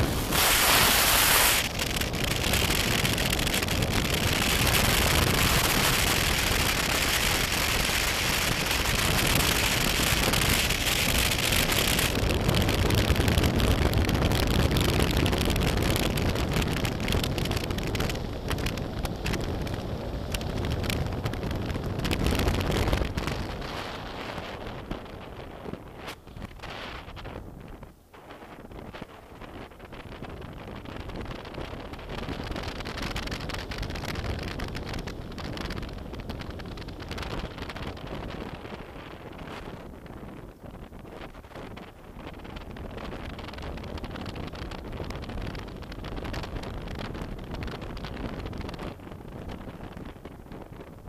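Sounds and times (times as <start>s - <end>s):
motorcycle riding: 0.0s - 25.4s
wind noise on microphone: 0.0s - 51.0s.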